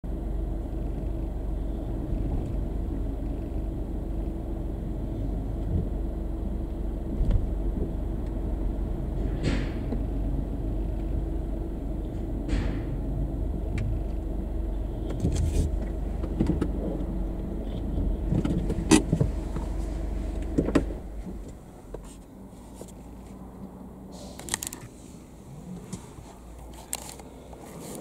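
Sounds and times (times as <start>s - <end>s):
car engine low rumble: 0.0s - 28.0s
short sharp air hisses: 24.1s - 24.6s.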